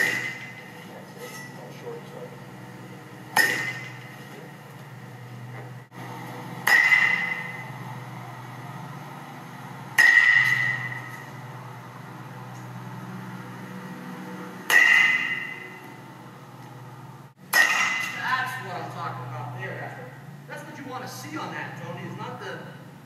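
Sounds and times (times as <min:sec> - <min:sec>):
baseball bat hitting ball: 0:00.0 - 0:00.8, 0:03.2 - 0:04.2, 0:06.5 - 0:07.8, 0:09.9 - 0:11.4, 0:14.6 - 0:15.9, 0:17.4 - 0:18.3
steady low hum: 0:00.0 - 0:23.0.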